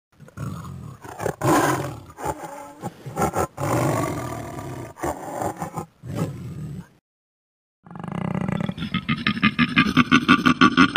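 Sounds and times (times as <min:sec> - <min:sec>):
lion roaring: 0:00.2 - 0:06.9.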